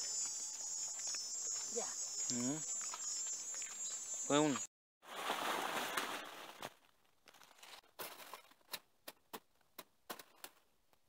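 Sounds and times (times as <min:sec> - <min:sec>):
leaves rustling loudly: 0:05.1 - 0:06.8.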